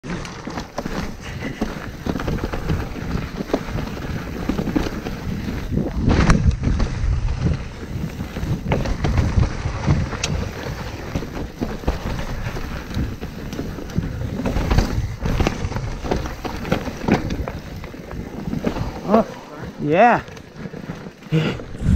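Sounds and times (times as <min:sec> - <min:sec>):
bike knocks and rattles: 0:00.0 - 0:21.9
bike tyres rumbling over dirt: 0:00.0 - 0:21.9
wind buffeting microphone: 0:01.2 - 0:20.2, 0:21.1 - 0:21.9.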